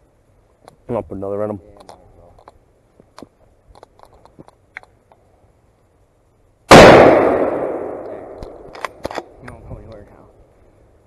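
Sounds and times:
faint ticks: 1.8s - 5.3s
rifle shot: 6.7s - 9.3s.

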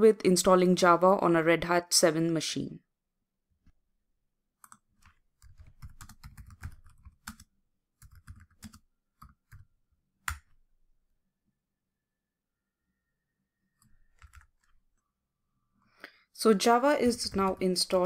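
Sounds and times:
typing on computer keyboard: 4.6s - 9.7s, 10.3s - 10.5s, 13.8s - 14.8s, 17.0s - 18.0s.

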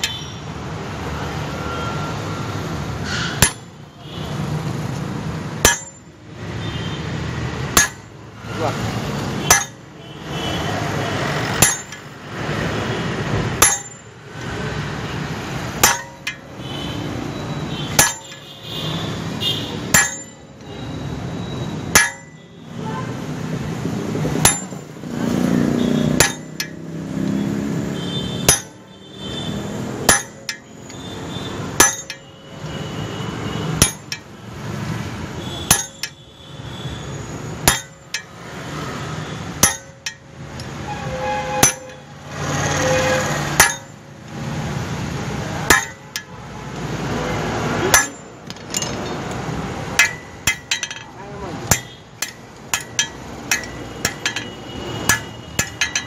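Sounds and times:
sharp metal clank: 3.1s - 3.8s, 5.6s - 6.2s, 7.7s - 8.2s, 9.4s - 10.0s, 11.6s - 12.1s, 13.5s - 14.2s, 15.8s - 16.5s, 17.7s - 18.5s, 19.9s - 20.6s, 21.8s - 22.5s, 24.4s - 24.9s, 25.9s - 26.8s, 28.0s - 29.0s, 30.0s - 31.1s, 31.8s - 32.4s, 33.8s - 34.4s, 35.4s - 36.2s, 37.6s - 38.4s, 39.6s - 42.1s, 42.8s - 44.1s, 45.6s - 46.4s, 47.8s - 56.0s.

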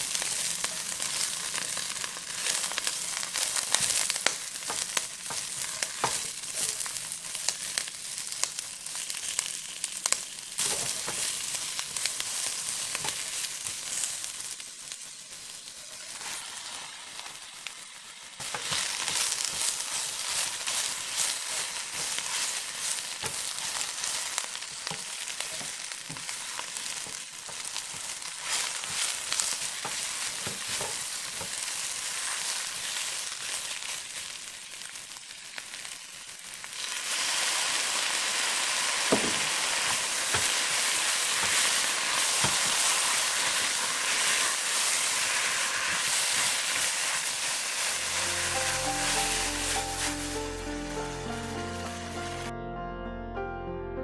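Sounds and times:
cabbage sizzling in a wok: 0.0s - 52.5s
spatula tossing food: 18.4s - 33.8s, 39.1s - 50.5s.

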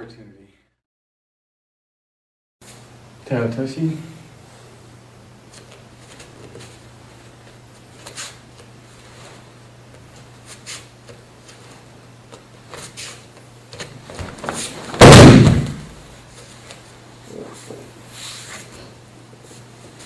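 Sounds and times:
low room hum: 2.6s - 20.0s
cloth rustling and bare feet: 5.4s - 20.0s
body slapping onto mat: 13.7s - 16.0s.

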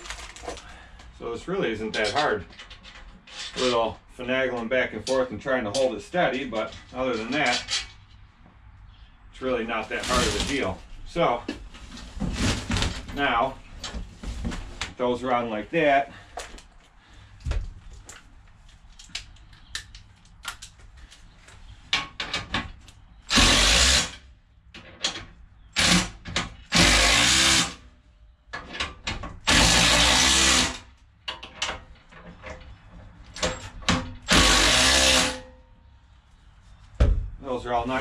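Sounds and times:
cordless drill running: 34.3s - 35.4s.

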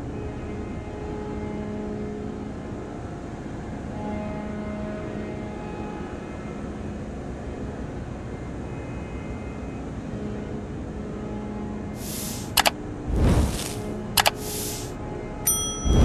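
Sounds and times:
hiss: 12.0s - 14.9s
sharp clicks: 12.0s - 14.9s.

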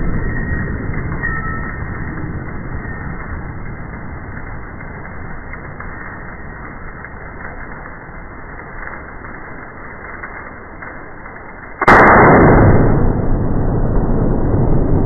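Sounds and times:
rifle shot: 11.8s - 15.0s.

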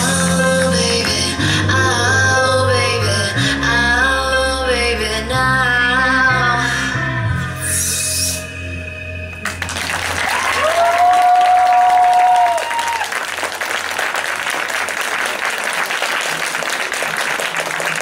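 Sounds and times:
audience applauding: 9.4s - 18.0s.

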